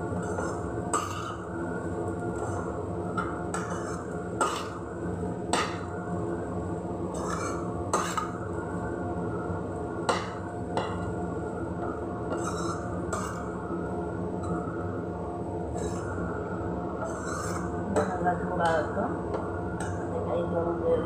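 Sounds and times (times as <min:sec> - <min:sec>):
steady hum: 0:00.0 - 0:21.0
spoon scraping a pan: 0:00.2 - 0:01.4, 0:03.5 - 0:04.8, 0:07.1 - 0:08.3, 0:12.3 - 0:13.5, 0:15.7 - 0:16.2, 0:17.0 - 0:18.1.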